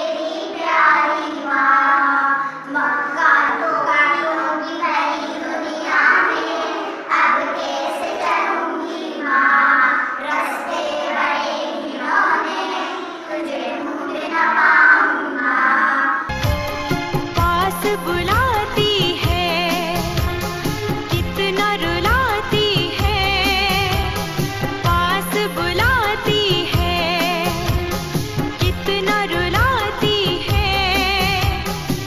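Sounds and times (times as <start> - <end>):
children singing: 0.0 - 16.3.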